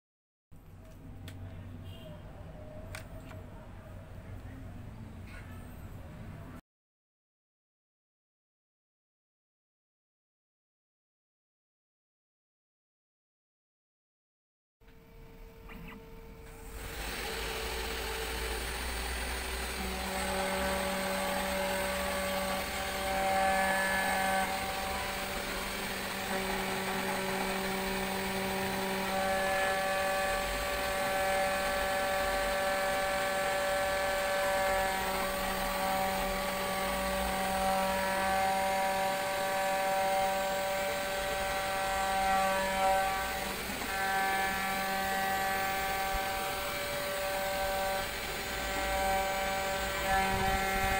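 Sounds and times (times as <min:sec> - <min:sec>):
end mill cutting acrylic: 0:16.4 - 0:50.9.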